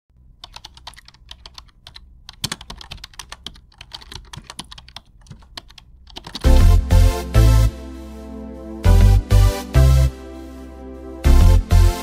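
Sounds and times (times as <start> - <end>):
keyboard key clicks: 0.4 - 6.5.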